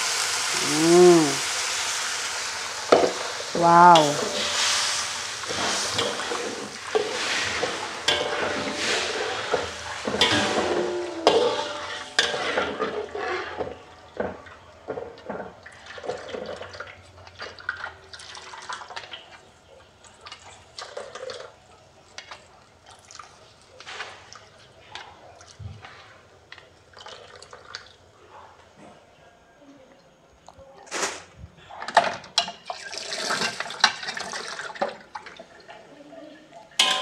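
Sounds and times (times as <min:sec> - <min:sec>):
spice paste sizzling: 0:00.0 - 0:13.6
metal spatula scraping in a wok: 0:04.2 - 0:13.9
liquid pouring: 0:26.5 - 0:28.0, 0:32.6 - 0:35.8.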